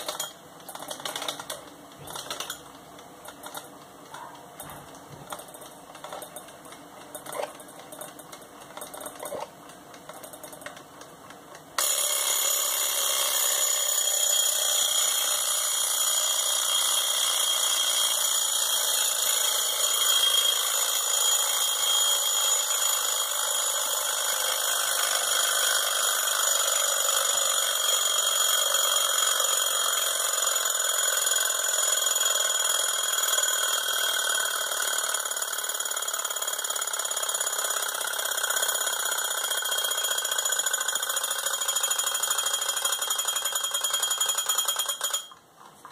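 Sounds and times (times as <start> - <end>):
alarm clock bell ringing: 0.0 - 0.4, 11.8 - 45.4.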